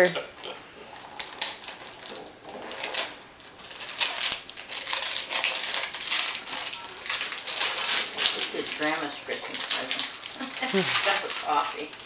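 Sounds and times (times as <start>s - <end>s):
wrapping paper tearing and crinkling: 1.0s - 12.0s.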